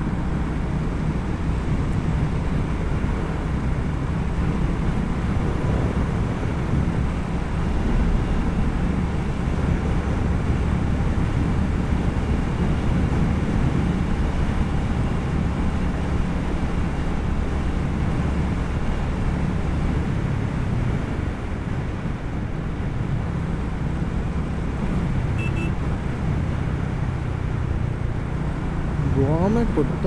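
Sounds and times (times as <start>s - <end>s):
short high beeps: 25.4s - 25.8s.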